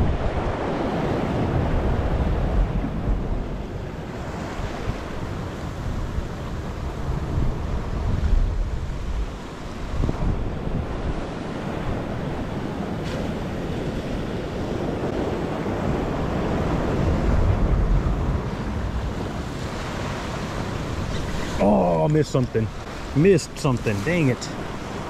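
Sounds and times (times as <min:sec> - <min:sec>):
ocean surf washing over rocks: 0:00.0 - 0:25.0
wind buffeting microphone: 0:00.0 - 0:25.0.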